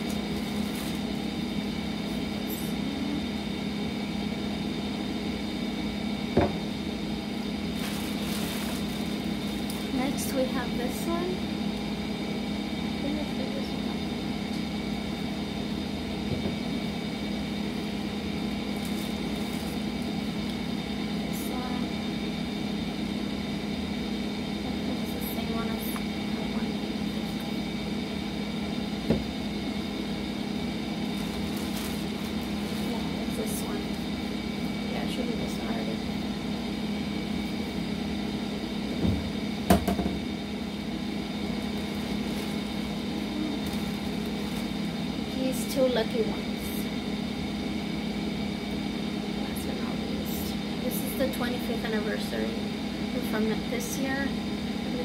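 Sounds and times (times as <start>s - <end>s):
mechanical room hum: 0.0s - 55.0s.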